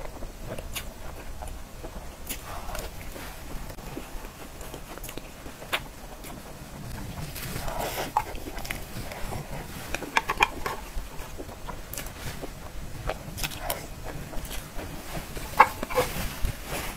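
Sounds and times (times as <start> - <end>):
chewing sounds: 0.0 - 16.9
spoon scraping plastic box: 7.5 - 11.0.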